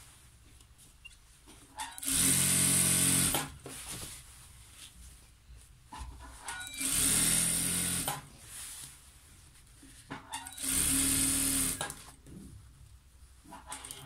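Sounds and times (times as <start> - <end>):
fabric rustling: 3.6 - 5.9, 8.4 - 10.1
sewing machine stitching: 6.4 - 8.2, 10.4 - 12.1.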